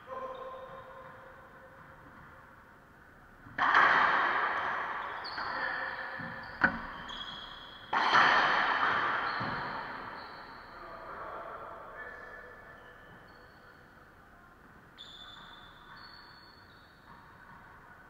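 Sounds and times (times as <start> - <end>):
racquetball loud echoing cracks: 3.4 - 10.6.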